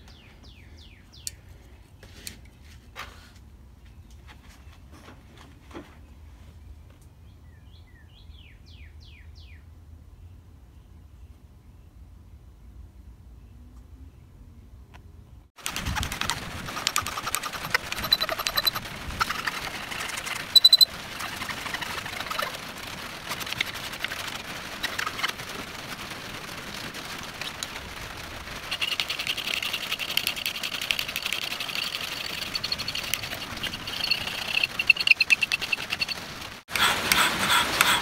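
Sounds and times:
rain drumming on shed: 15.6 - 38.0
loud squeak: 17.4 - 22.5, 31.6 - 37.0
file rasping on metal: 36.7 - 38.0.

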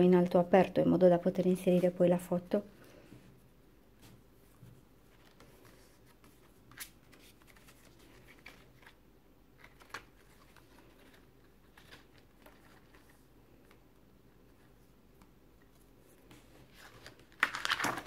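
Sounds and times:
paper pages rustling: 4.0 - 13.8, 14.4 - 18.0.

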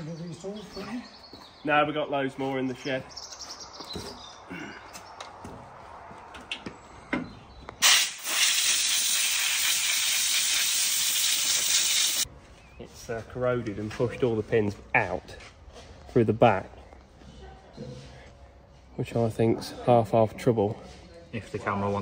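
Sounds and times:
compressed air blow gun hissing: 7.8 - 12.3.

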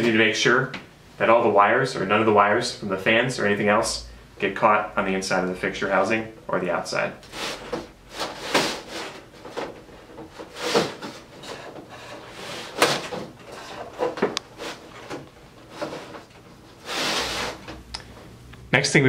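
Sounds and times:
metal housing sliding scrapes: 7.2 - 9.6, 10.3 - 17.8.

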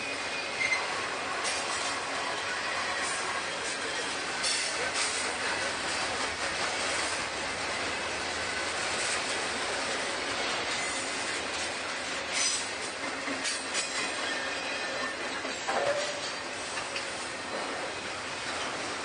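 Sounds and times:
wheel squeal: 0.0 - 1.0
train wheels rumbling and rattling: 0.0 - 19.0
clacking over rail joints: 4.4 - 7.2, 10.6 - 18.9.

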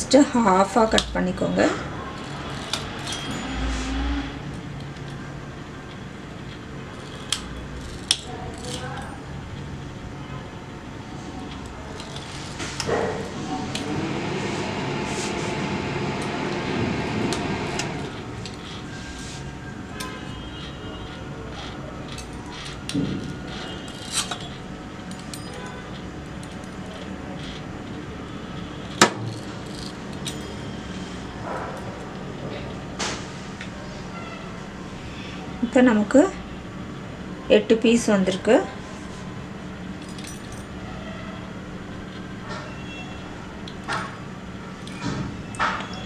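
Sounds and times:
steady low hum: 0.0 - 45.7
pastry wheel cutter clicking: 2.1 - 3.4, 5.8 - 9.6
low hum: 9.9 - 25.5.

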